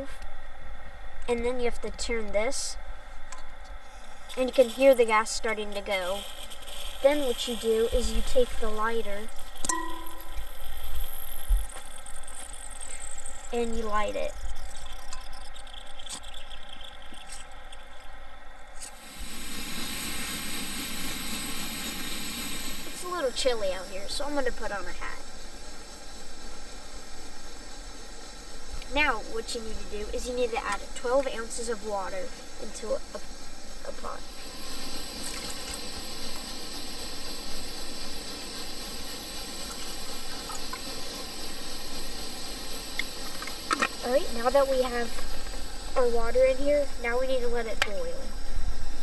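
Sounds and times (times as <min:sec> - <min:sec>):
stove flame sputtering hiss: 0:00.0 - 0:49.0
water pouring into pot: 0:04.3 - 0:08.6, 0:09.3 - 0:18.1, 0:34.3 - 0:47.0
burner roaring hiss: 0:18.9 - 0:49.0.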